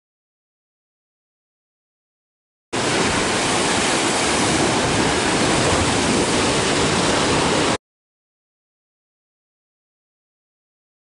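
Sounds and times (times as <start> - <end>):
water washing over rock: 2.8 - 7.8.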